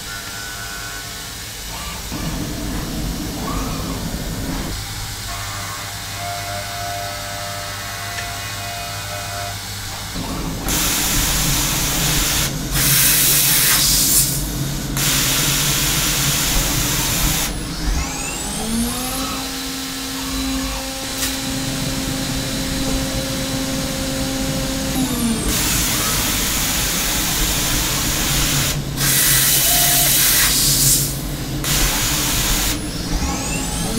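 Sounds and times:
spindle whine: 0:00.0 - 0:07.2, 0:16.8 - 0:29.0
end mill cutting metal: 0:00.0 - 0:33.9.

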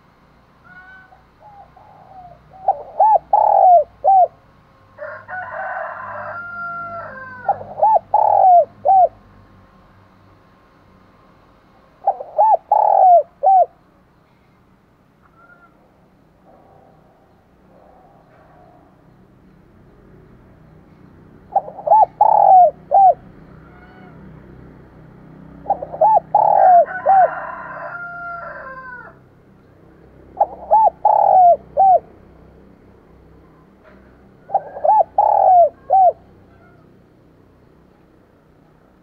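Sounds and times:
dove cooing: 0:00.6 - 0:04.4, 0:05.6 - 0:09.2, 0:12.0 - 0:13.8, 0:21.5 - 0:24.2, 0:25.5 - 0:29.2, 0:30.3 - 0:32.2, 0:34.4 - 0:36.9.

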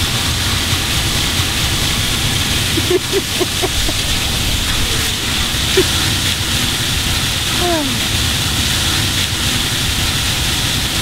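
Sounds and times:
fluttering low rumble: 0:00.0 - 0:07.6
high hiss: 0:00.0 - 0:10.6.

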